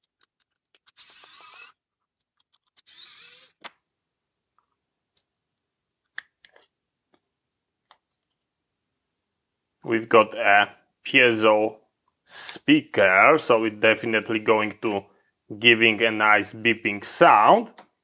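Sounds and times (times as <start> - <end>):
electric screwdriver whirring: 0.8 - 1.8, 2.8 - 3.8.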